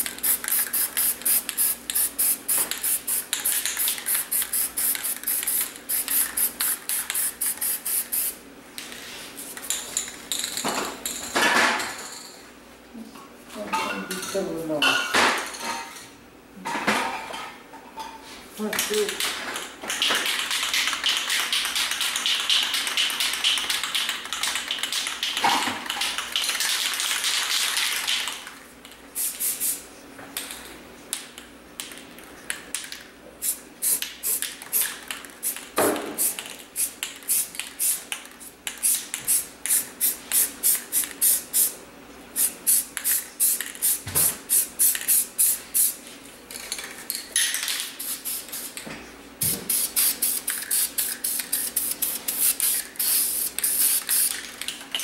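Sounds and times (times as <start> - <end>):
spray paint can hissing: 0.0 - 8.4, 29.2 - 29.8, 33.4 - 35.6, 36.2 - 38.1, 38.7 - 41.7, 42.4 - 46.0, 48.0 - 48.8, 49.7 - 54.5.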